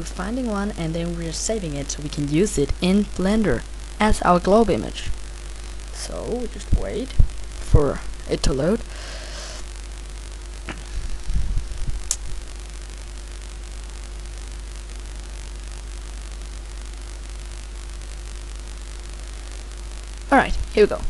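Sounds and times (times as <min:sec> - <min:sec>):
microphone electrical buzz and hum: 0:00.0 - 0:21.0
low rumbling thumps: 0:10.6 - 0:12.5.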